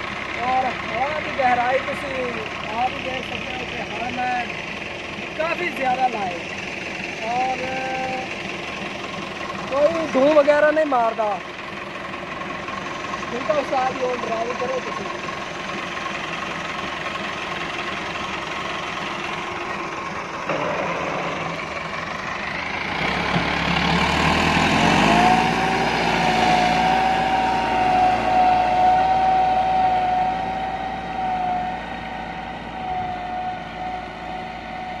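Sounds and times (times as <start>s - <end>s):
tractor diesel engine running: 0.0s - 35.0s
steady high whine: 25.3s - 35.0s.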